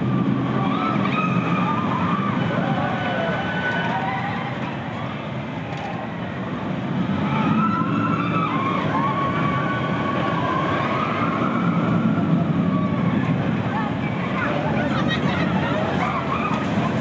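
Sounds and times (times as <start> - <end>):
roller coaster train rumbling: 0.0 - 17.0.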